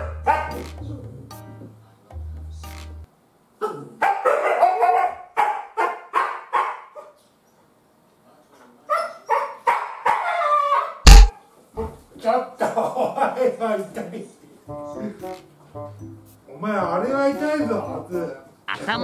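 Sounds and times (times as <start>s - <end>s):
dog barking and yowling: 3.6s - 7.2s, 8.9s - 11.0s.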